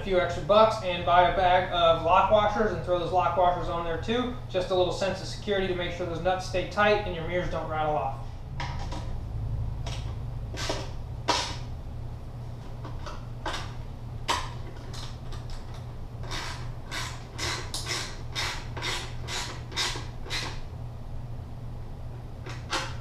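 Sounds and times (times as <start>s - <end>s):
socket ratchet clicking: 14.3s - 20.6s.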